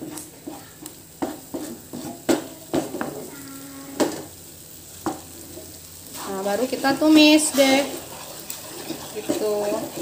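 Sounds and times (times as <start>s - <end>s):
spatula knocking on pan: 0.0s - 4.4s, 5.0s - 5.7s, 8.8s - 10.0s
oil sizzling: 0.0s - 10.0s
spatula scraping frying pan: 0.0s - 10.0s.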